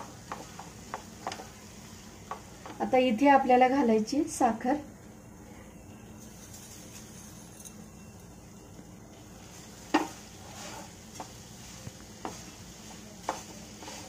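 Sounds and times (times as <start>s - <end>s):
spoon stirring thick mixture in pan: 0.0s - 1.6s, 9.9s - 14.0s.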